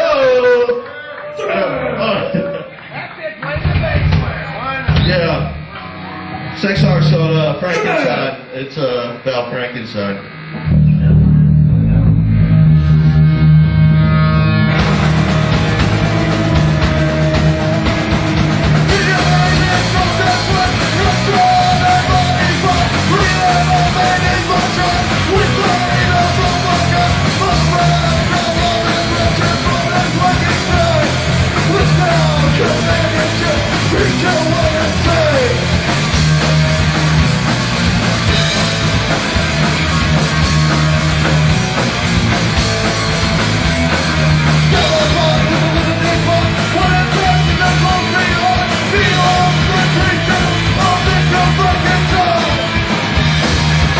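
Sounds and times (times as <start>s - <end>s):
punk rock band playing: 0.0s - 53.9s
vocalist yelling into microphone: 6.8s - 8.5s.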